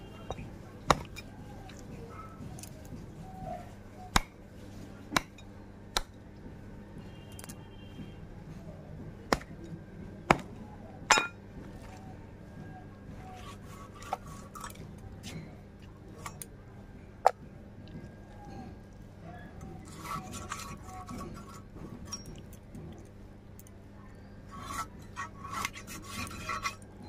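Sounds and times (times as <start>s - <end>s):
knife chopping meat on wooden block: 0.9s - 1.1s, 5.1s - 5.4s, 10.3s - 10.5s.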